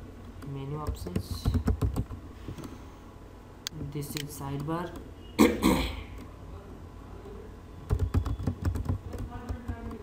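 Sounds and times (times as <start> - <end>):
computer keyboard typing: 0.7 - 2.2, 7.8 - 10.0.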